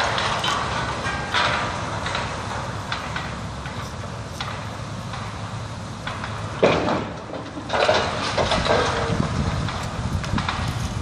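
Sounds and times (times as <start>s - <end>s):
debris clattering: 0.0s - 3.2s, 6.1s - 9.8s.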